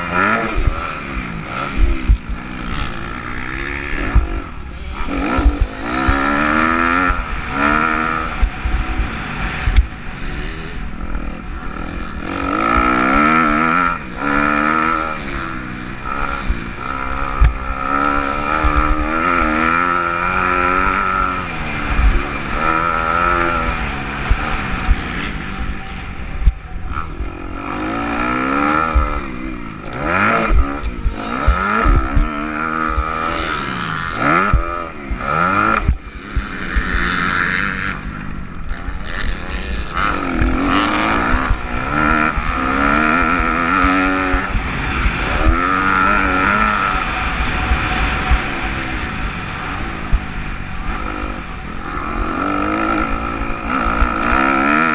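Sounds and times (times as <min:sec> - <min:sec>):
motocross bike engine revving: 0:00.0 - 0:54.9.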